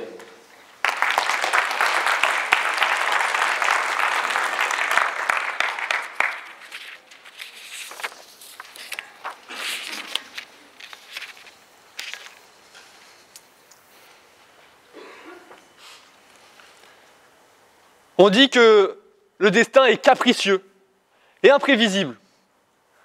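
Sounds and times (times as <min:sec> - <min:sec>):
audience applauding: 0:00.8 - 0:07.0.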